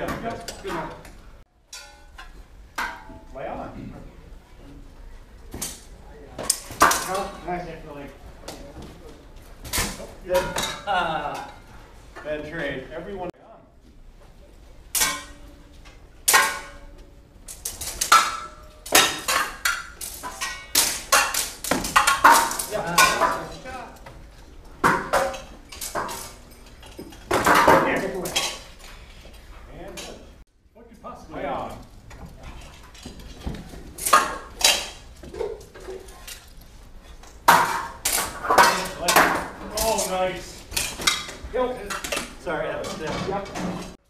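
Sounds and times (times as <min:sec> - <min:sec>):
steel swords clashing: 0:01.7 - 0:03.2, 0:14.9 - 0:23.8, 0:34.0 - 0:35.1, 0:37.4 - 0:42.4.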